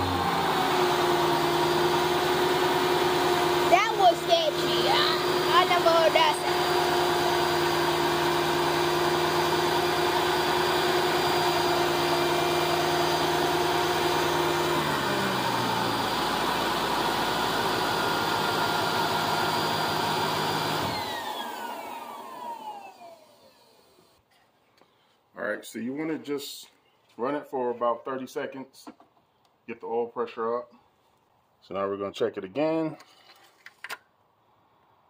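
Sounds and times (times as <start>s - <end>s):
engine whine winding down: 0.0s - 24.2s.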